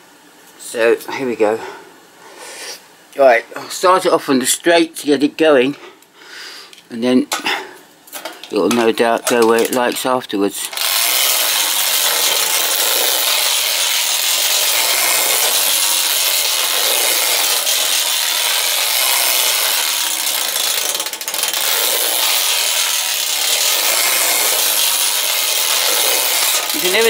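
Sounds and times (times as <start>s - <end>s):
toy train whirring rattle: 10.6s - 27.0s.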